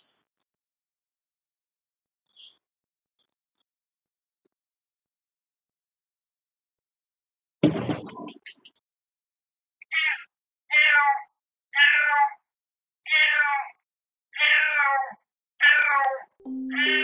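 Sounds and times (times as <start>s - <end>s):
cat meowing: 9.9s - 12.4s, 13.1s - 13.8s, 14.4s - 17.0s.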